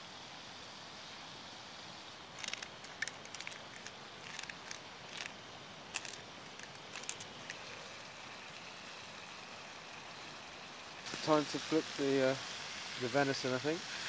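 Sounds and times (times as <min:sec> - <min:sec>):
crackles and pops: 0:02.4 - 0:07.9
steaks sizzling in a skillet: 0:07.4 - 0:14.0.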